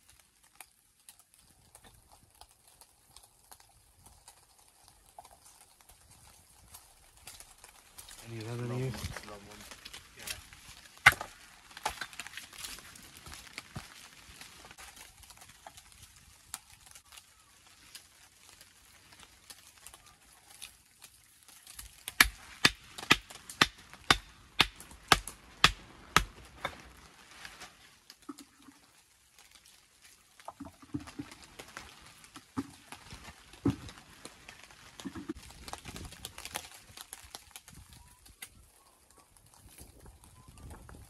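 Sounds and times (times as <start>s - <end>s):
hammer striking stone: 22.2s - 26.3s.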